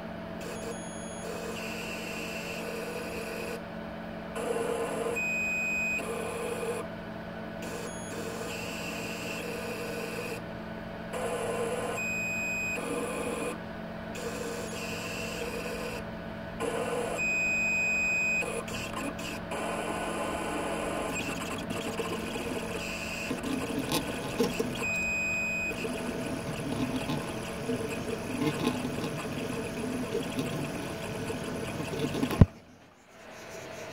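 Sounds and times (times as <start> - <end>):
stepper motor whining: 16.8 - 33.9
steady low hum: 21.0 - 33.9.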